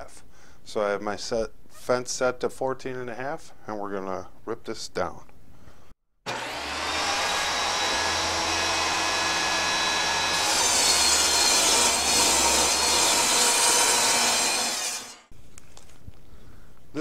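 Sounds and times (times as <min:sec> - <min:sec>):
table saw cutting board: 0:06.3 - 0:15.3.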